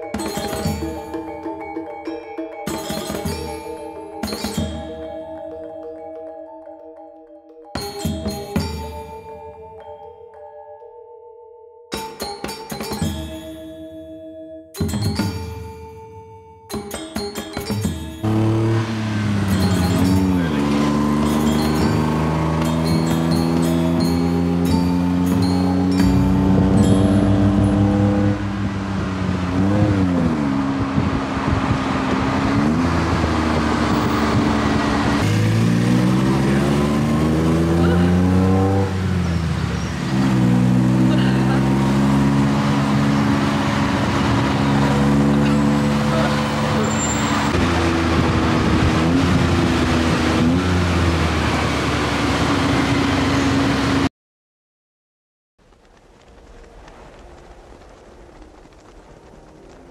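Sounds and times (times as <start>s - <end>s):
auto rickshaw engine running: 17.4s - 54.1s
road and wind rush: 18.2s - 54.1s, 55.7s - 59.9s.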